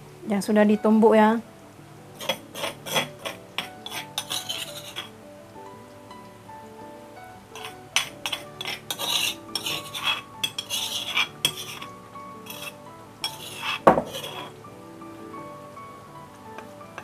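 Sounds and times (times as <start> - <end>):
utensil scraping and clinking in pan: 2.2 - 5.2, 7.5 - 14.6.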